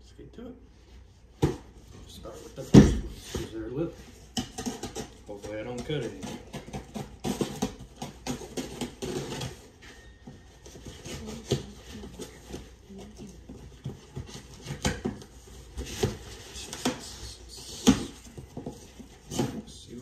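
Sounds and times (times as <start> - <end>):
box cutter slicing tape: 6.4 - 9.5.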